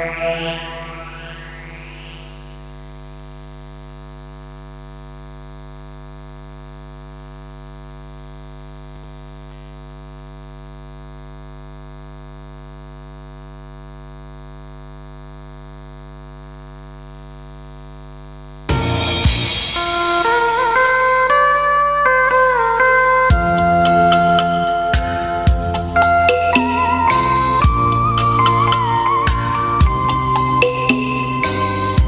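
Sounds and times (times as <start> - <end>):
music: 0.0 - 2.5, 18.7 - 32.0.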